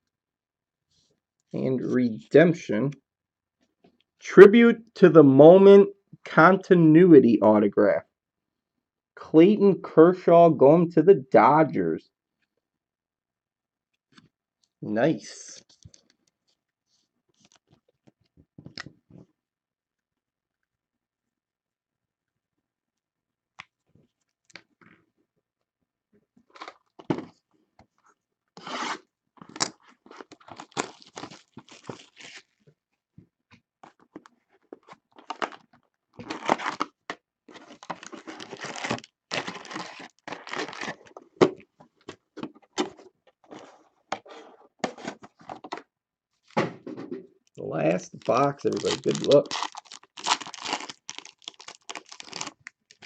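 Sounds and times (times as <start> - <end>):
packaging ripping and crinkling: 28.6 - 32.6, 34.8 - 41.1, 48.0 - 53.0.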